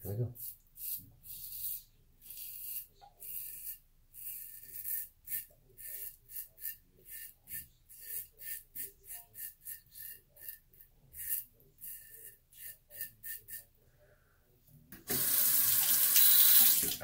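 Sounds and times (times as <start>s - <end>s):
razor scraping stubble: 0.3s - 13.7s.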